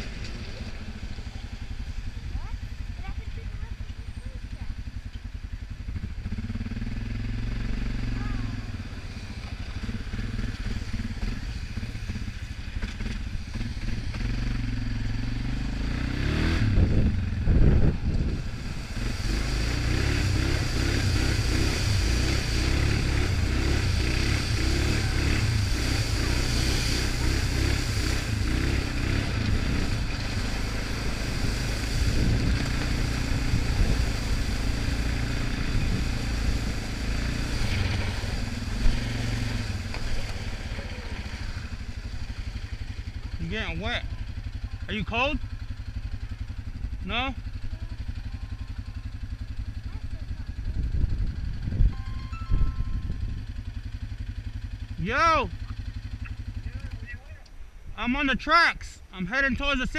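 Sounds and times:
quad bike engine running: 0:00.0 - 0:59.9
water hissing and splashing: 0:18.4 - 0:43.2.

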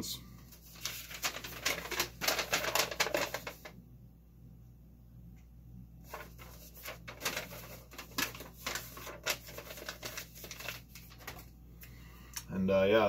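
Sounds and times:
paper rustling and crinkling: 0:00.5 - 0:03.8, 0:06.0 - 0:11.6.

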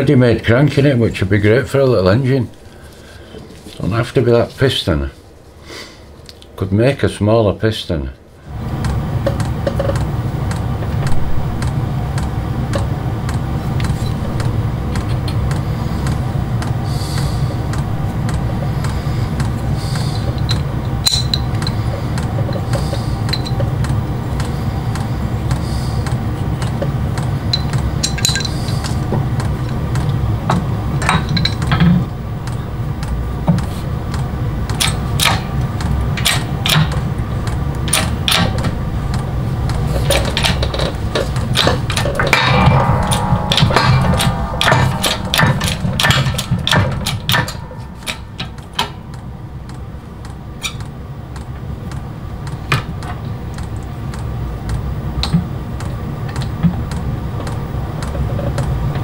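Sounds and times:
low hum: 0:08.2 - 0:52.4
steel parts clicking and tapping: 0:08.8 - 0:59.0.

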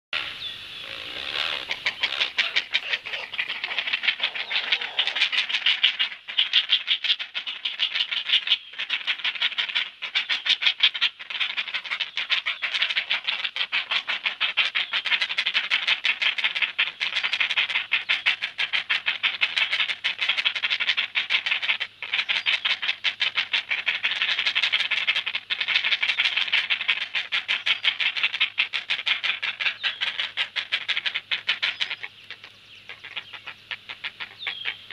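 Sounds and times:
heron chicks clattering chatter: 0:00.2 - 0:34.9.

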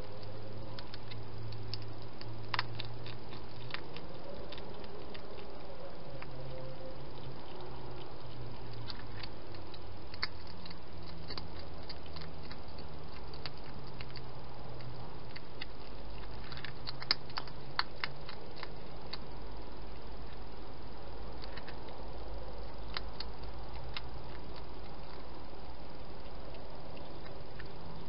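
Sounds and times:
background hiss: 0:00.0 - 0:28.0
hedgehog crunching food: 0:00.0 - 0:28.0
low hum: 0:00.0 - 0:28.0.

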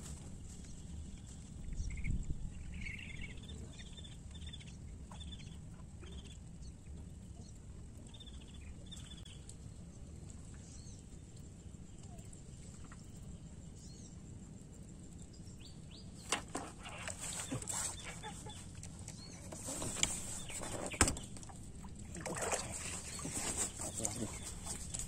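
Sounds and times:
small birds chirping: 0:00.5 - 0:14.3, 0:15.2 - 0:25.0
rustles: 0:16.2 - 0:25.0
water splashing and churning: 0:16.4 - 0:25.0.

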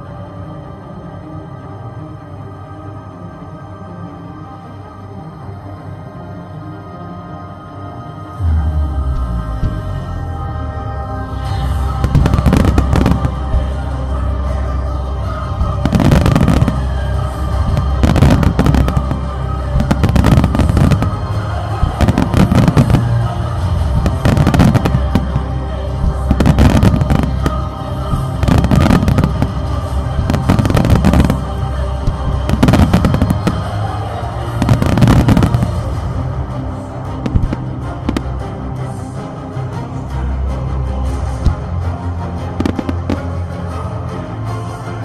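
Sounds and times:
music: 0:00.0 - 0:45.0
fireworks bursting: 0:09.0 - 0:10.2, 0:11.6 - 0:14.0, 0:15.5 - 0:36.0, 0:37.3 - 0:38.4.

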